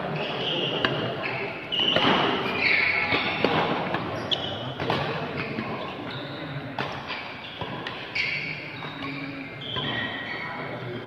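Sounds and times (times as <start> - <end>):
voices chattering: 0.0 - 11.0
shoes squeaking on court: 0.1 - 10.7
racket hitting shuttlecock: 0.8 - 1.1, 1.8 - 4.1, 4.8 - 5.6, 6.8 - 8.1.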